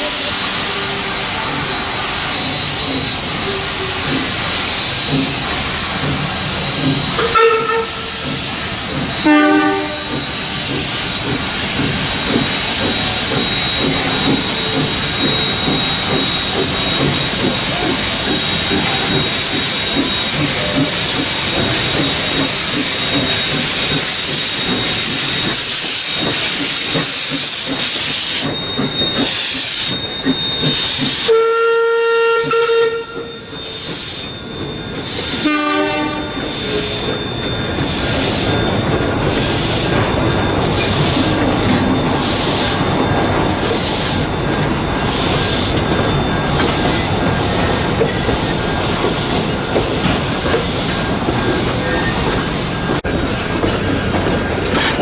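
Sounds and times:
steam locomotive hissing: 0:00.0 - 0:55.0
train whistle blasts: 0:07.2 - 0:08.2, 0:09.2 - 0:10.2, 0:29.3 - 0:34.2, 0:35.2 - 0:37.1.

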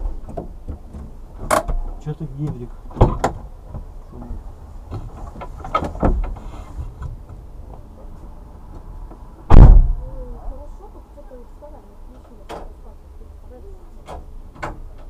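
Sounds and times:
car door shutting: 0:00.0 - 0:03.9, 0:09.5 - 0:10.0
knocks and rustles: 0:00.0 - 0:10.1.

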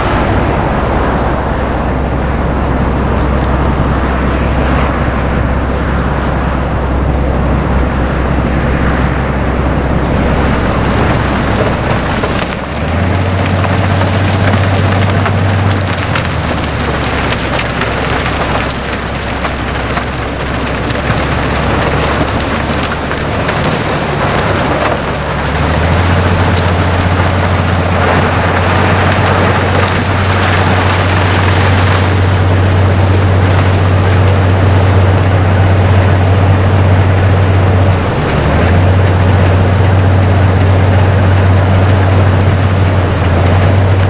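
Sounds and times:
rotary snowplow droning: 0:00.0 - 0:44.0
hiss and patter of thrown snow: 0:10.2 - 0:35.1.

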